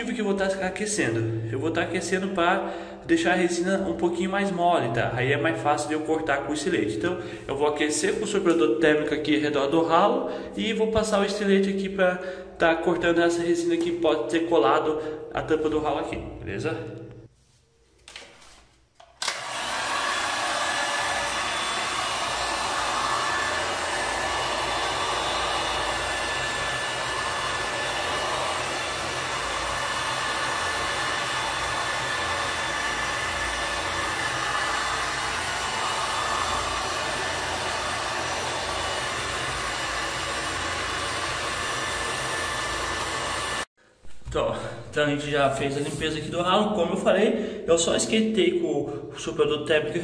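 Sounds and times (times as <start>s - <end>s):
heat gun blowing air: 19.2s - 43.7s.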